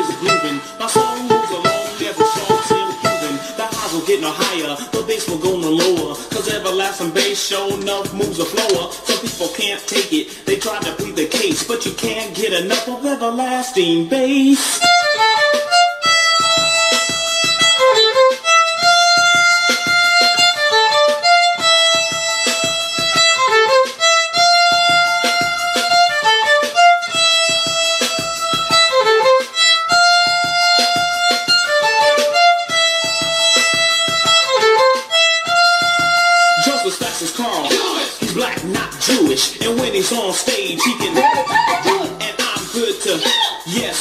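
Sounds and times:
violin melody: 0.0s - 4.3s, 14.7s - 38.2s, 40.8s - 42.4s.

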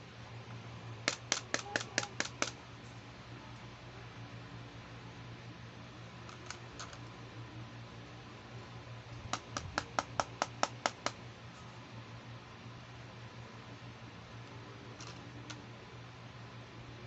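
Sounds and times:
steady low hum: 0.0s - 17.0s
fingernails tapping plastic case: 1.1s - 2.5s.

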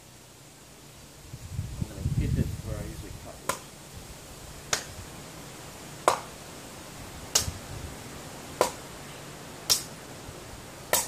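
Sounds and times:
sword chopping into wood: 6.1s - 6.3s, 7.3s - 7.5s, 8.6s - 8.8s.

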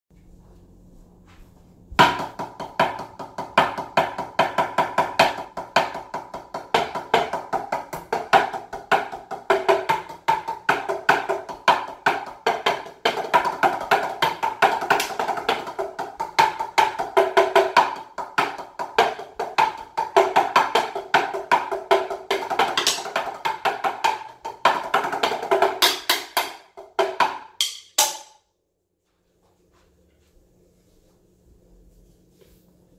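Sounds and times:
rapid drumming on tuned drums: 2.0s - 28.2s.

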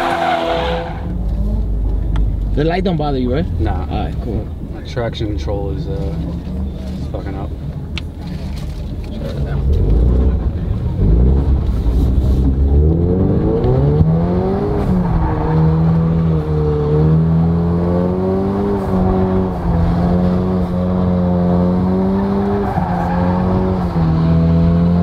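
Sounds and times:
car engine revving: 8.3s - 25.0s.

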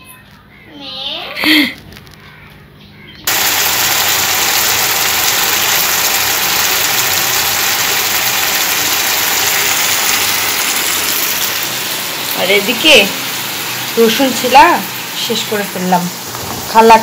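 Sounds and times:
curry bubbling and sizzling in pan: 3.3s - 15.1s.

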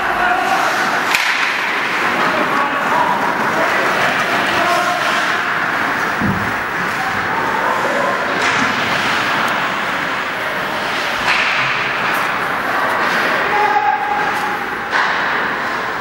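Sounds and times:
ice hockey rink noise: 0.0s - 16.0s
low thud: 6.2s - 6.8s.

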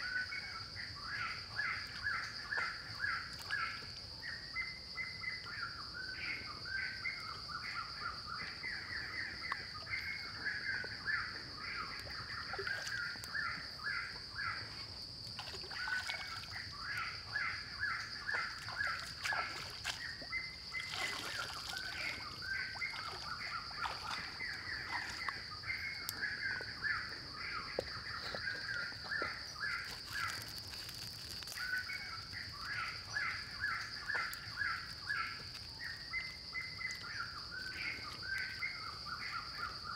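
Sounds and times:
high insect drone: 0.0s - 39.9s
water splashing: 15.3s - 17.1s, 18.2s - 26.2s.

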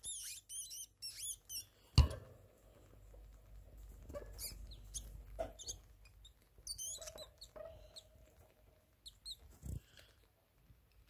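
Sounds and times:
rat pups squeaking: 0.0s - 1.8s, 3.4s - 10.3s.

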